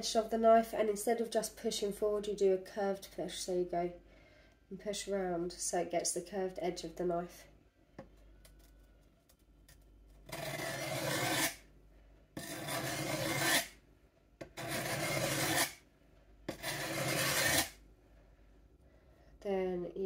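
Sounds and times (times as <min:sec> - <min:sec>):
knife scraping on sharpening stone: 0:10.3 - 0:11.6, 0:12.4 - 0:13.7, 0:14.6 - 0:15.8, 0:16.5 - 0:17.7.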